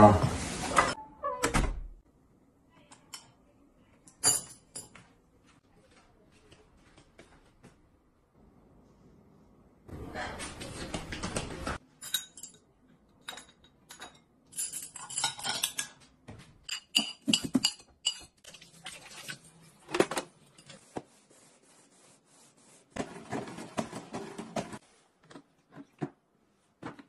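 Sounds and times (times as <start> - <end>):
ceramic dishes clinking: 12.0 - 16.0, 16.7 - 18.4.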